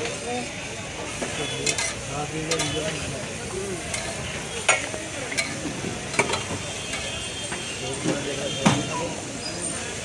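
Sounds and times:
frying sizzle: 0.0 - 10.0.

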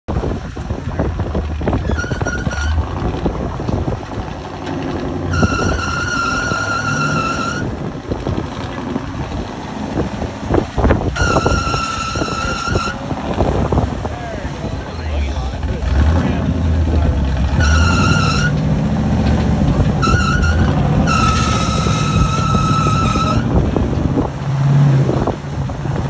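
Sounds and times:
truck scraping and knocking on rock: 0.1 - 14.1, 15.6 - 26.0
truck engine labouring: 0.1 - 26.0
high horn-like note: 5.3 - 7.7, 11.2 - 13.0, 20.0 - 23.5.

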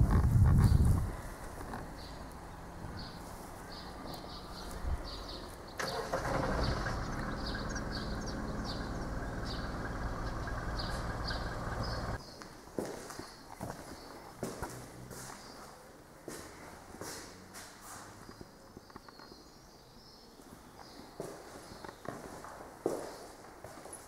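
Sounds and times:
birds chirping: 0.6 - 12.5
vehicle engine running: 1.6 - 12.2.

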